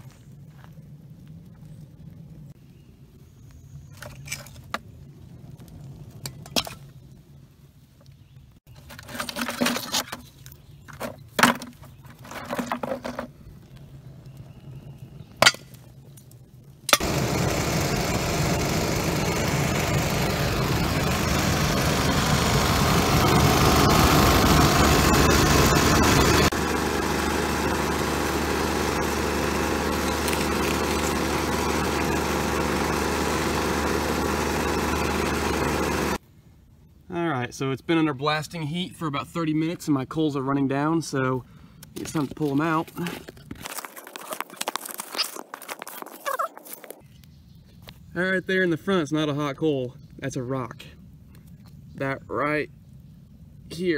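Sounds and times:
rocks clacking in plastic bucket: 8.8 - 13.3
loud air blower: 17.0 - 36.2.

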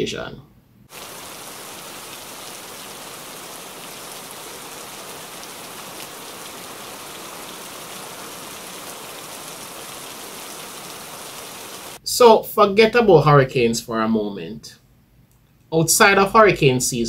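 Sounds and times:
steady rain falling: 0.9 - 12.0.

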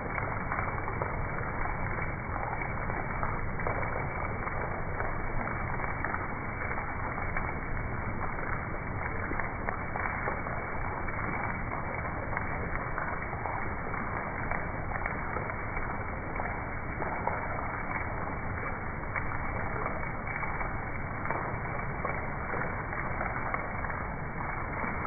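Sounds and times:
heavy rain splashing on water: 0.0 - 25.0.

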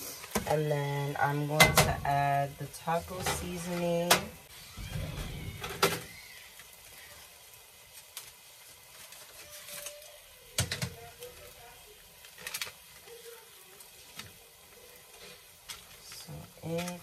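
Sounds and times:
paper packet crinkling: 7.8 - 10.2, 10.9 - 13.4.

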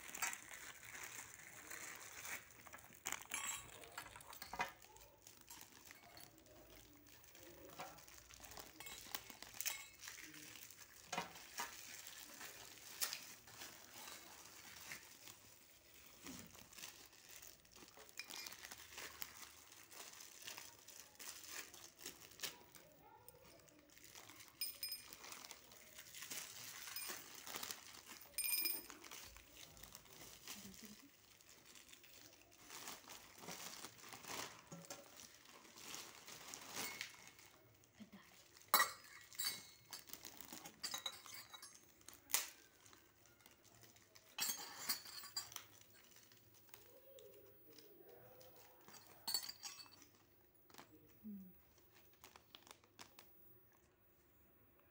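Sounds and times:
plastic wrap crinkling: 0.0 - 54.0
metal vessels clinking: 3.0 - 4.8, 38.7 - 41.9, 44.4 - 46.1, 48.8 - 50.2.

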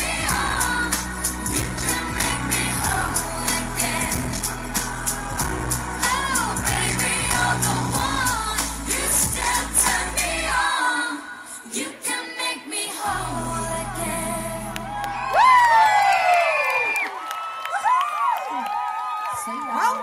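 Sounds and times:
women singing into microphones: 0.0 - 15.3
amplified pop backing music: 0.0 - 15.7.

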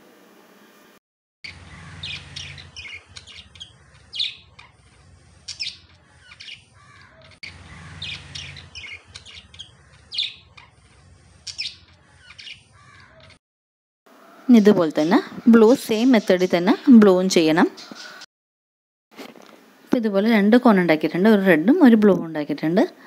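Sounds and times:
small birds chirping: 1.4 - 13.4.

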